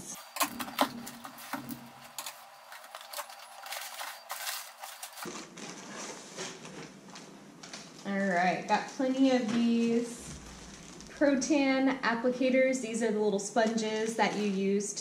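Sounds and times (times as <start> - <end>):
packing clicks and taps: 0.2 - 5.3
cardboard flaps rustling and scraping: 0.2 - 7.0.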